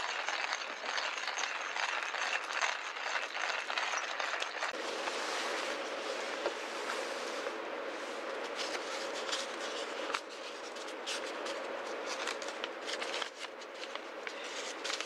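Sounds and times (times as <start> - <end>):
coffee grinder crushing beans: 0.0 - 4.8.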